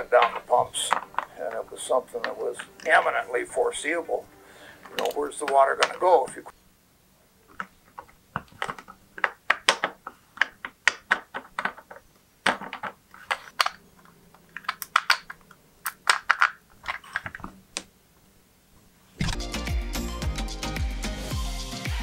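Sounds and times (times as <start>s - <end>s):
plastic gears clicking: 13.2s - 17.5s.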